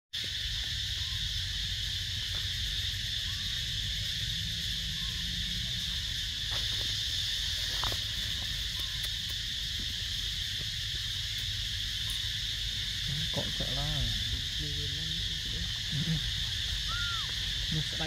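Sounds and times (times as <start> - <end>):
high-pitched insect drone: 0.2 - 18.0.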